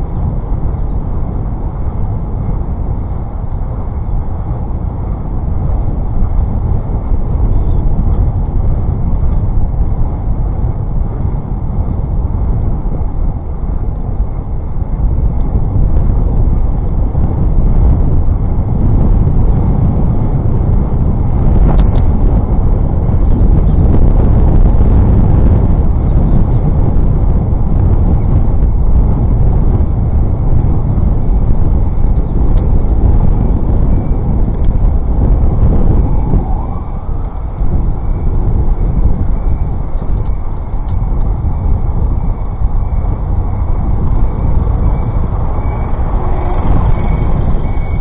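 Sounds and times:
road traffic rumble: 0.0s - 48.0s
wind on microphone: 0.0s - 48.0s.

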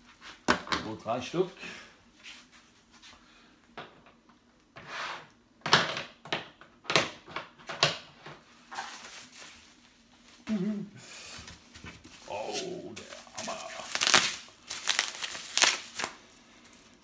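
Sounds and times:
plastic packaging crinkling: 13.0s - 17.0s.

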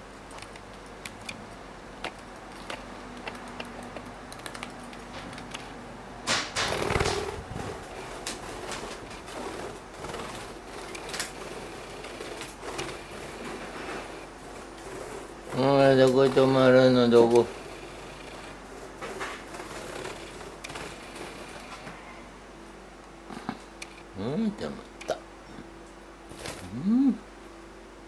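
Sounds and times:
bird rustling flurry: 2.0s - 22.1s.

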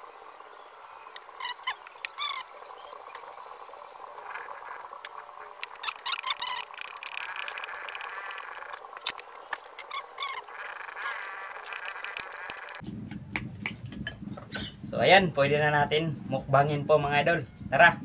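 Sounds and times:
animal calls falling in pitch: 9.8s - 12.8s.

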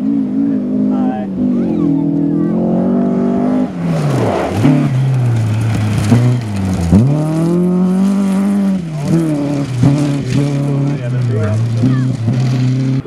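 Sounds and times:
rally car engine revving: 0.0s - 13.0s.

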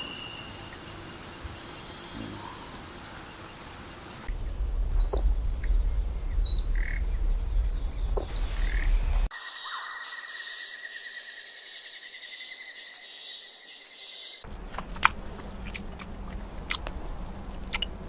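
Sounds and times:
bird calls: 0.0s - 4.4s, 5.0s - 18.0s
steady low rumble: 4.0s - 9.3s, 14.5s - 18.0s.

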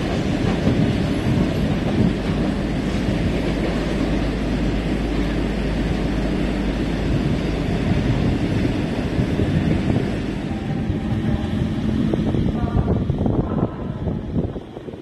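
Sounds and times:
freight train rumbling: 0.0s - 15.0s.

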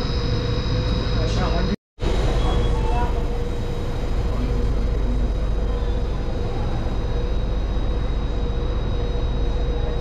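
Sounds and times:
constant mid-pitched tone: 0.0s - 10.0s
faint high whine: 0.0s - 10.0s
train car idle hum: 2.0s - 10.0s.

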